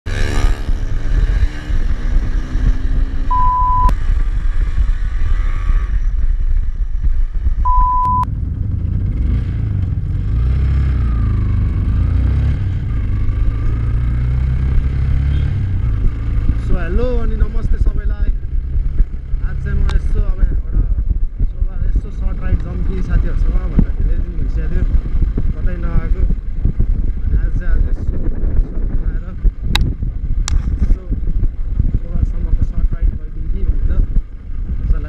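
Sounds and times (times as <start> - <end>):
motorcycle engine running: 0.1 - 35.0
wind rumble on microphone: 0.1 - 35.0
test-tone beeps: 3.3 - 3.9, 7.6 - 8.3.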